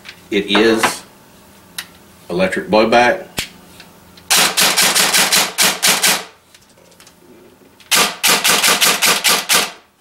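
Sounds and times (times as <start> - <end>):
airsoft gun firing bursts: 4.3 - 6.3, 7.9 - 9.8.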